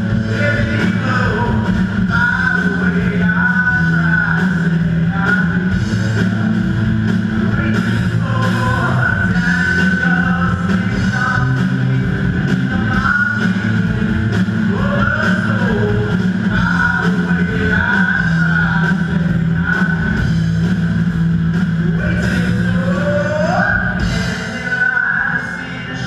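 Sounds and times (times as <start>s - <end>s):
rock band playing live: 0.0s - 26.0s.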